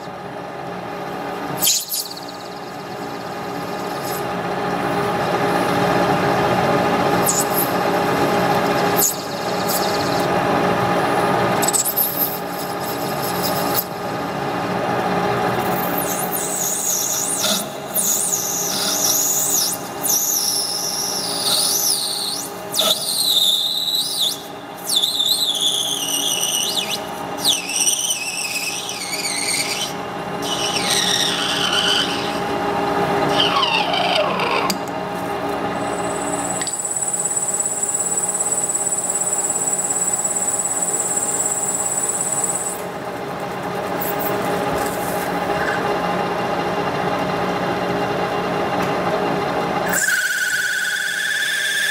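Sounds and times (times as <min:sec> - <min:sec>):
tool squealing on plastic: 0:15.9 - 0:32.4, 0:33.3 - 0:34.8, 0:49.9 - 0:51.9.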